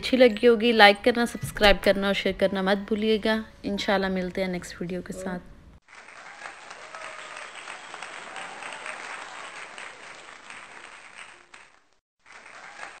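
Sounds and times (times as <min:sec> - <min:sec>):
crowd applauding: 0:05.8 - 0:13.0.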